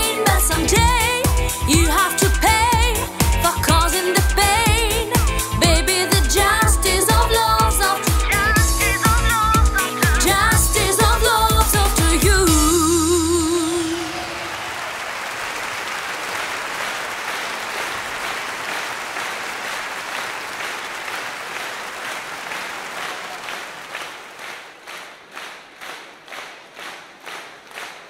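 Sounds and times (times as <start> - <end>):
audience applauding: 13.6 - 28.0.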